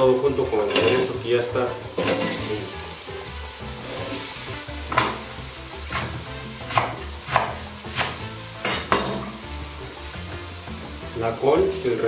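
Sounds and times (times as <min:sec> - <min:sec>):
food sizzling: 0:00.0 - 0:12.0
wooden spoon knocking a metal pot: 0:04.9 - 0:05.3, 0:08.6 - 0:09.4.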